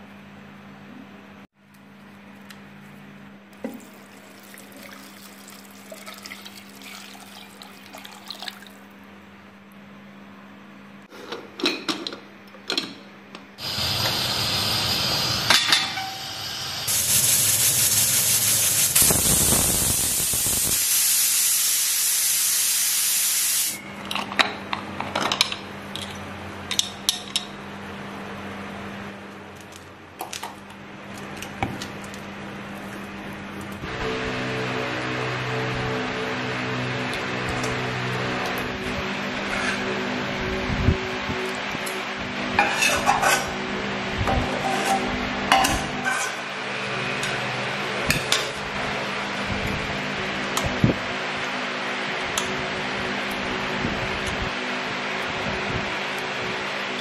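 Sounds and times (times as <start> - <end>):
loud rushing hiss: 13.6 - 23.8
pots and utensils clinking: 15.5 - 16.3.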